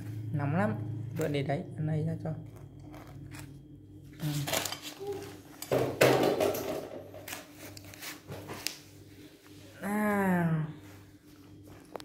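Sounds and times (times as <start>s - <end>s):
people talking: 0.3s - 2.5s, 4.2s - 5.4s, 9.8s - 10.9s.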